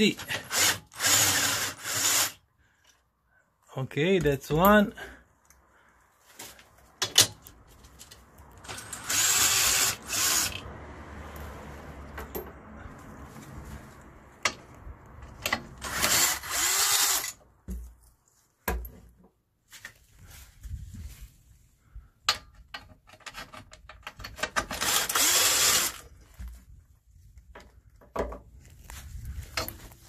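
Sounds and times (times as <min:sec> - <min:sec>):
metallic clicks of sockets and bolts: 0:22.2 - 0:24.8.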